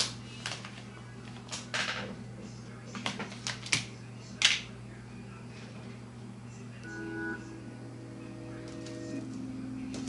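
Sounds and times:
low hum: 0:06.8 - 0:10.0.

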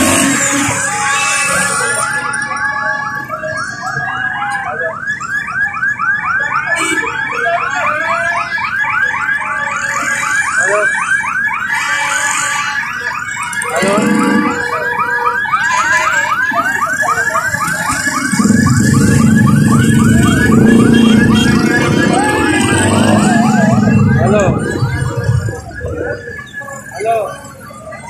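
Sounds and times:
electronic siren warble: 0:00.0 - 0:04.3, 0:13.2 - 0:28.0.

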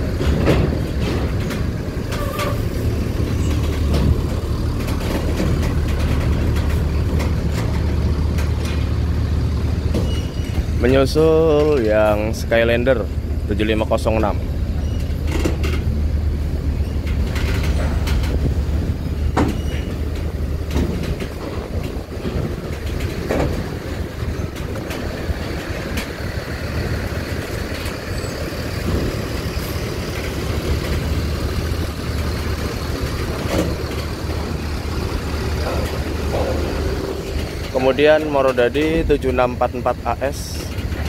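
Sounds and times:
clanks from metal ramp plates: 0:00.0 - 0:08.9, 0:09.9 - 0:10.7, 0:14.7 - 0:15.9, 0:16.8 - 0:18.5, 0:19.2 - 0:26.2, 0:33.0 - 0:39.0
bus diesel engine hum: 0:00.0 - 0:41.0.

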